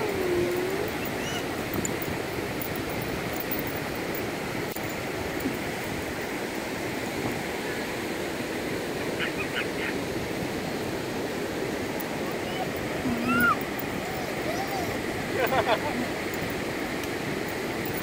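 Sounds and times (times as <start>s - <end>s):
ocean surf breaking: 0.0s - 17.8s
faint high-pitched sounds: 12.0s - 15.2s.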